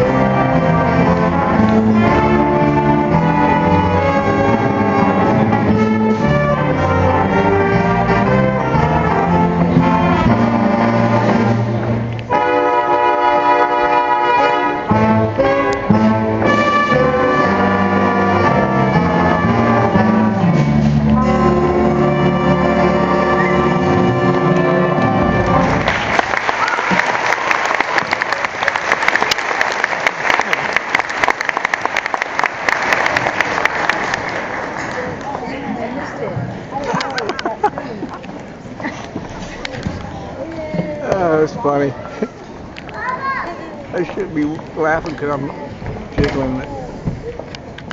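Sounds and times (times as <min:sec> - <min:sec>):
school band playing: 0:00.0 - 0:35.3.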